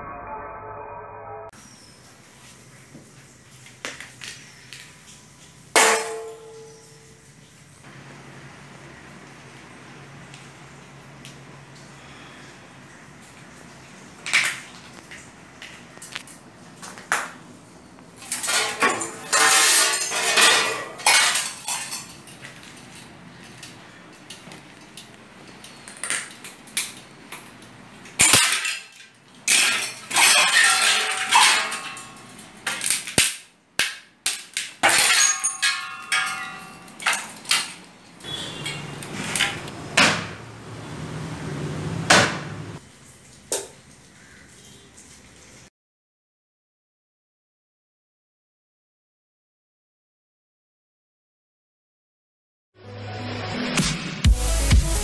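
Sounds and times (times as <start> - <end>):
metal and glass crashing: 5.8 - 7.1, 18.2 - 22.5, 28.2 - 33.3, 34.4 - 39.6
metal and glass scraping: 18.2 - 24.4, 28.2 - 33.0, 34.8 - 39.7
metal part ringing: 35.0 - 37.0.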